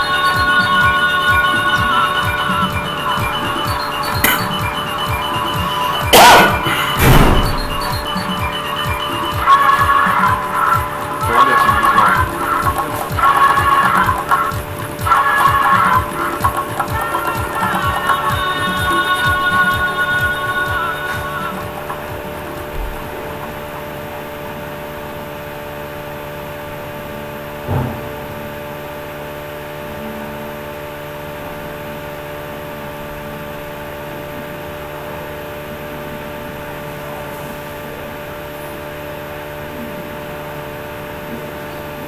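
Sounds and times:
steady hum with hiss: 0.0s - 42.0s
brief thump: 6.2s - 8.1s, 27.7s - 28.4s.

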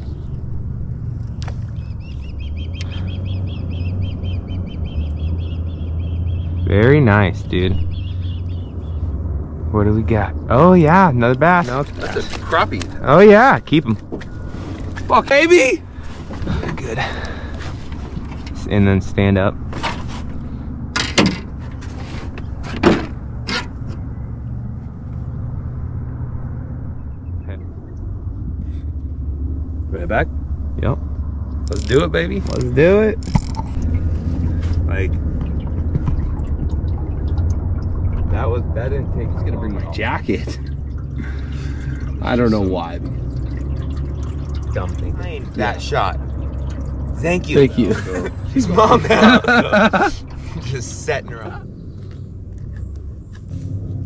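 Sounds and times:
steady low rumble: 0.0s - 54.0s
bird chirping rapidly: 1.6s - 9.2s.

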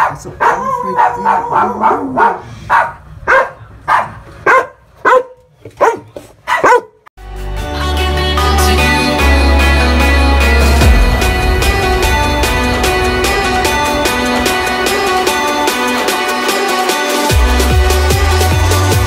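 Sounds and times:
dog barking: 0.0s - 7.0s
music with heavy bass: 7.2s - 19.0s.

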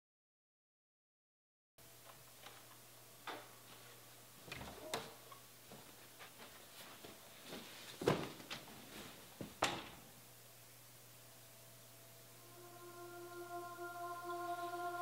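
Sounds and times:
footsteps: 3.4s - 9.6s
low steady hum: 8.6s - 15.0s.

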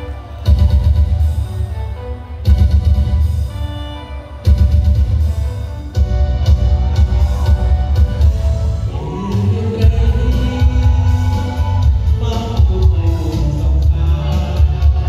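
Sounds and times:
loud music with heavy bass beat: 0.1s - 15.0s
person singing: 7.0s - 15.0s.

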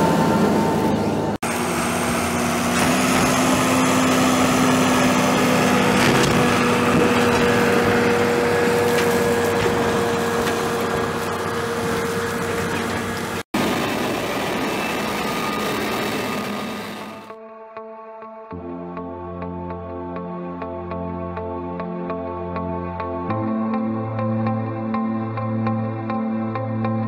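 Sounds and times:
tractor engine driving past: 0.0s - 17.3s.

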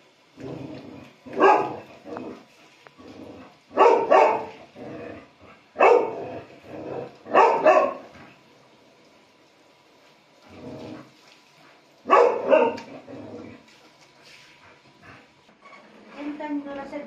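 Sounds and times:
dog barking: 1.3s - 1.9s, 3.7s - 4.6s, 5.8s - 6.3s, 7.3s - 8.1s, 12.0s - 12.9s.

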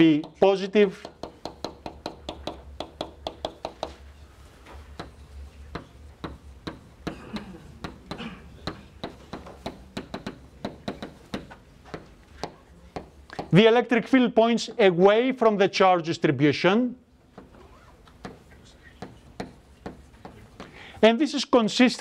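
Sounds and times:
chalk tapping on blackboard: 0.0s - 4.1s, 4.7s - 7.1s, 7.8s - 13.6s, 17.3s - 20.8s.

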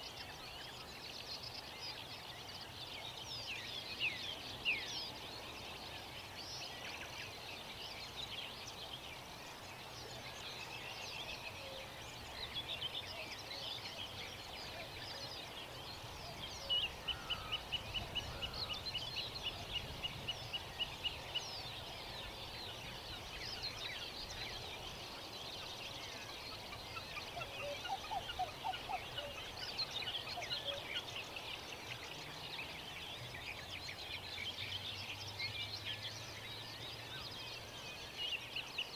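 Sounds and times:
songbirds chirping and trilling: 0.0s - 38.9s.

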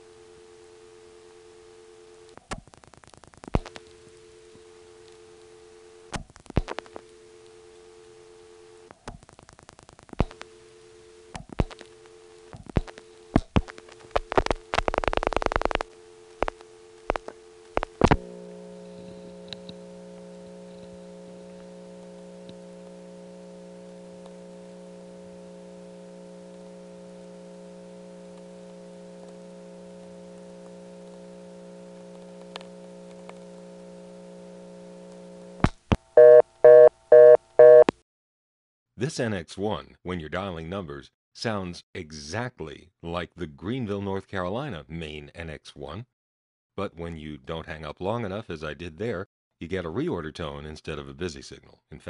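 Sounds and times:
telephone line low hum: 0.0s - 9.0s, 9.9s - 38.0s
two-note dial tone: 36.2s - 37.9s.

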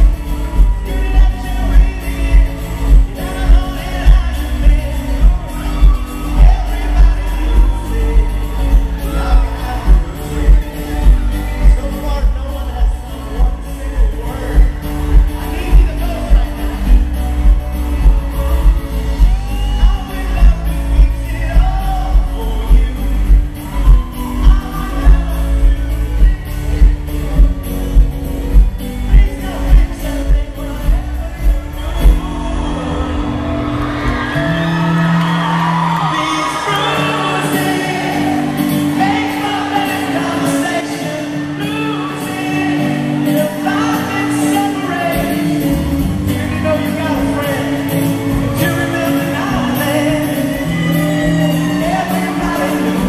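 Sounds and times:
people singing: 0.0s - 17.0s, 36.2s - 44.9s
live pop-rock band: 0.0s - 53.0s.

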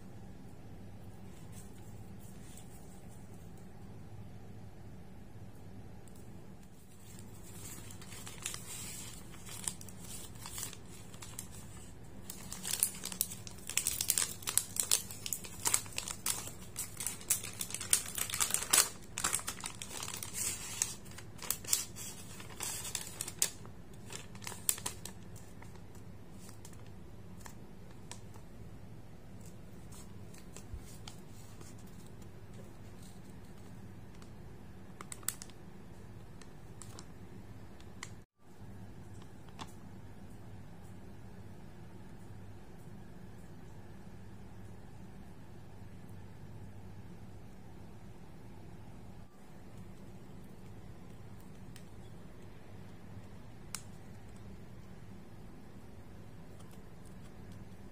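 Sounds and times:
paper and plastic bags crinkling: 6.7s - 28.4s, 29.4s - 33.7s.

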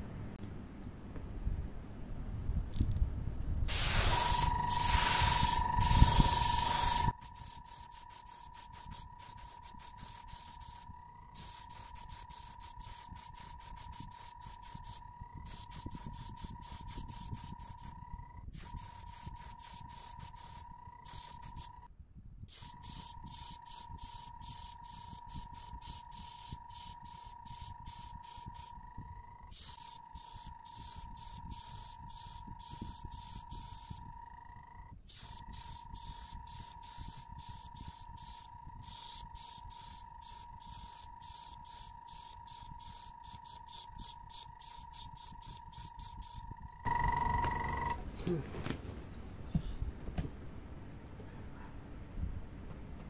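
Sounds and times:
faint steady whine: 0.0s - 53.0s
airbrush spraying hiss: 3.7s - 18.0s, 18.6s - 21.9s, 22.5s - 28.9s, 29.5s - 34.3s, 35.0s - 46.5s.

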